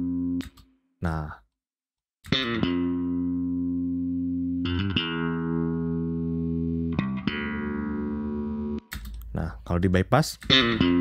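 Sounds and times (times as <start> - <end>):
electric bass guitar notes: 0.0 - 1.3, 2.2 - 9.7, 10.4 - 11.0.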